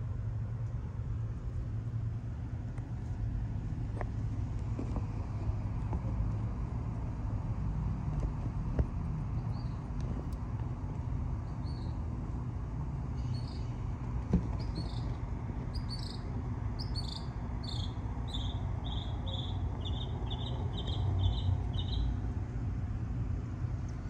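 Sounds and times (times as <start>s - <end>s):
low outdoor rumble: 0.0s - 24.0s
small bird chirping: 9.4s - 9.8s, 11.4s - 12.0s, 13.2s - 13.8s, 14.6s - 22.2s.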